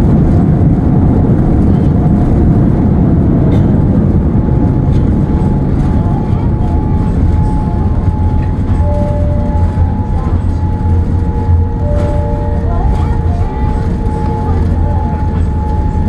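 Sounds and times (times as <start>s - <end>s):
jet engines and wheels rumbling: 0.0s - 16.0s
faint steady tones: 5.5s - 16.0s.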